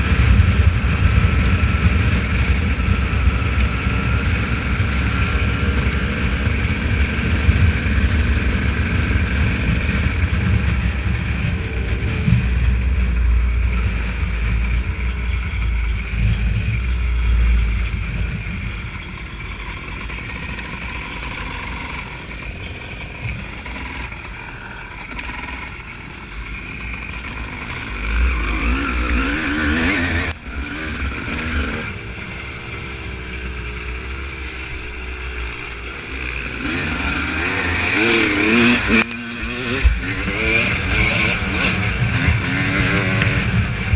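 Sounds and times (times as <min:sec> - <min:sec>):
heavy low rumble: 0:00.0 - 0:20.4, 0:39.4 - 0:43.9
motorbike engine revving: 0:00.0 - 0:43.9.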